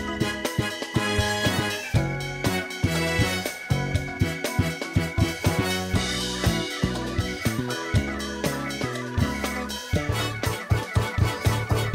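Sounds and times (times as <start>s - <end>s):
regular drum hits: 0.0s - 11.9s.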